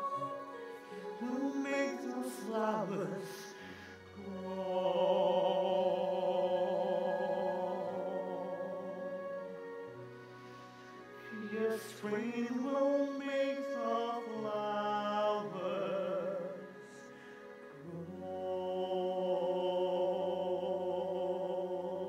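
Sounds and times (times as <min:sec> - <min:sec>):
man singing a slow ballad: 0:00.0 - 0:03.6, 0:11.3 - 0:16.9
sustained musical accompaniment: 0:00.0 - 0:22.0.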